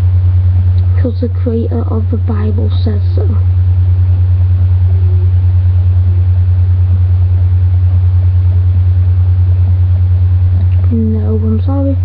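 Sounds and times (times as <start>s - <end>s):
low hum with fast flutter: 0.0s - 12.0s.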